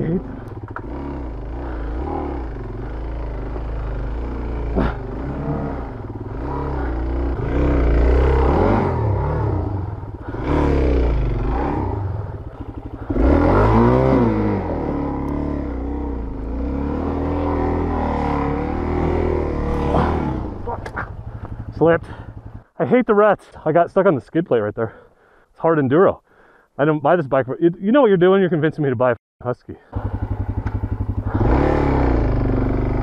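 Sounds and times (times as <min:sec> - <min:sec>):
motorcycle engine revving: 0:00.0 - 0:22.7, 0:30.0 - 0:33.0.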